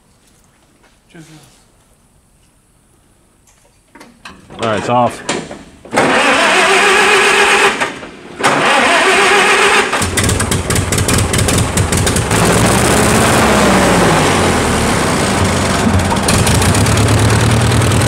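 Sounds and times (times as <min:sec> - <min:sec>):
tractor engine cranking: 0:04.3 - 0:18.0
tractor engine running: 0:05.8 - 0:18.0.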